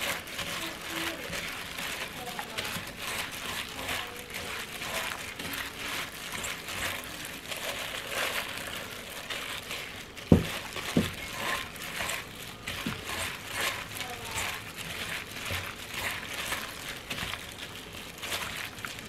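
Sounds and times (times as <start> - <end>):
plastic glove crinkling: 0.0 - 19.0
dull knocks: 10.3 - 11.2.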